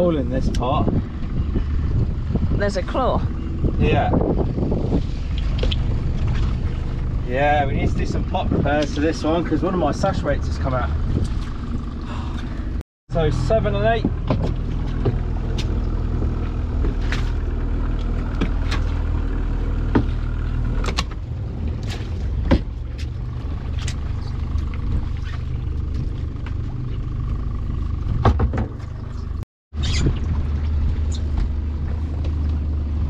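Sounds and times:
boat motor running: 0.0s - 33.0s.

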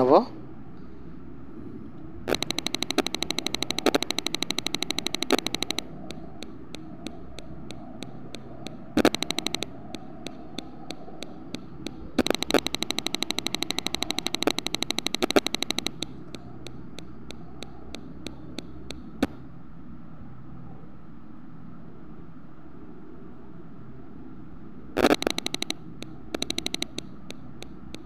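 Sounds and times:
faint steady hum: 0.0s - 28.0s
rapid sharp clicking: 2.3s - 19.4s, 25.0s - 28.0s.

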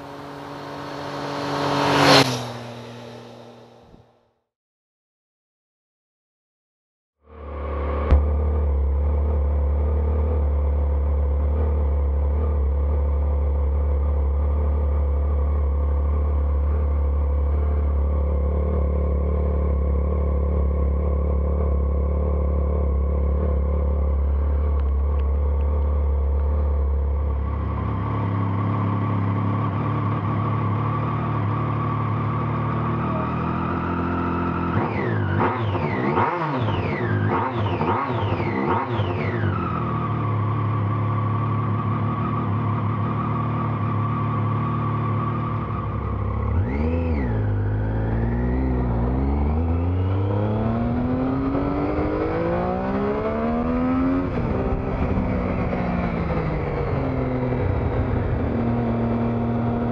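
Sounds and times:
motorcycle engine idling and revving: 0.0s - 4.4s, 7.2s - 59.9s.

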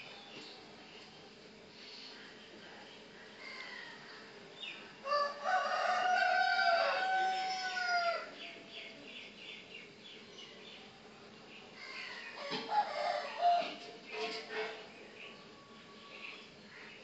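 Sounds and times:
rooster crowing: 5.0s - 8.4s, 12.4s - 13.8s.

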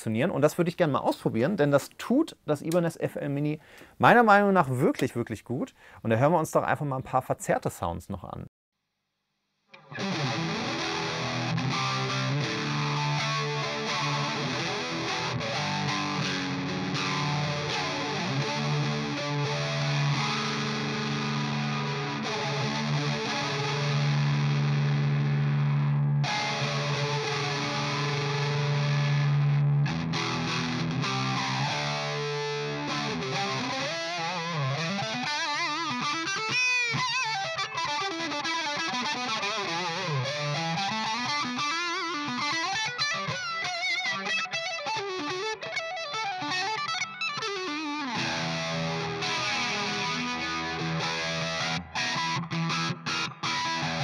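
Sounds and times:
distorted electric guitar with flanger: 9.8s - 54.0s.

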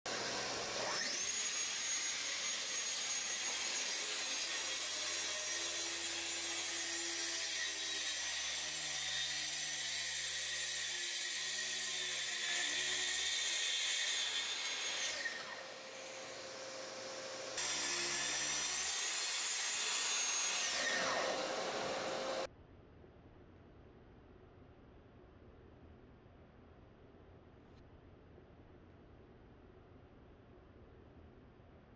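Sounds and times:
track saw cutting wood: 0.1s - 22.5s.

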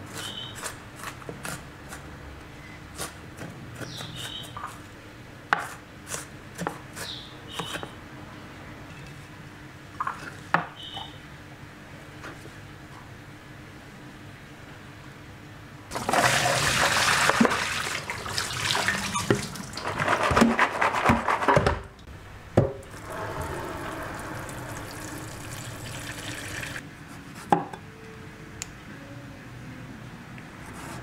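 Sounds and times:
tap water running into bowl: 15.9s - 19.8s, 23.8s - 26.8s.

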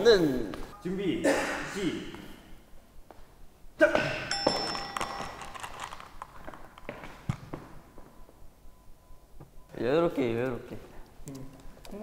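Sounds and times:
ringing chime-like ping: 4.2s - 5.7s.

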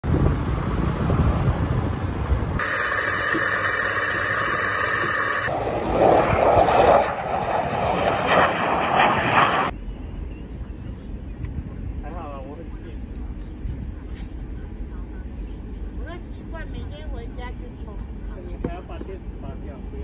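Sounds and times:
passing aircraft engine rush: 0.0s - 14.5s
coffee grinder running: 2.6s - 5.5s.

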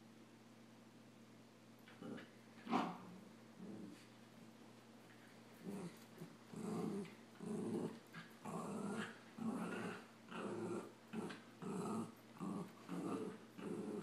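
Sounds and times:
puppies growling: 5.6s - 14.0s.

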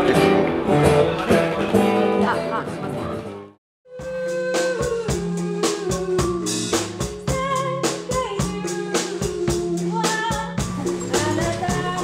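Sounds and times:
live band music: 0.0s - 12.0s
drum kit beat: 3.9s - 12.0s.

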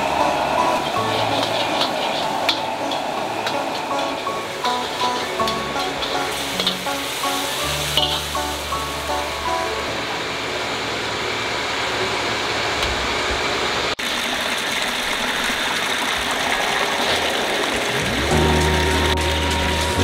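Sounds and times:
tap water pouring into a colander: 14.0s - 20.0s.

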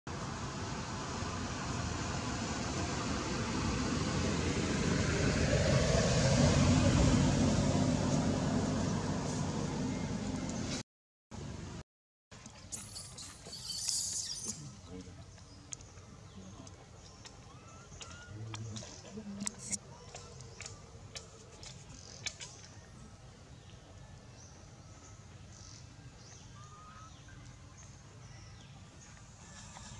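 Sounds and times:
passing motor vehicle: 0.1s - 10.8s.

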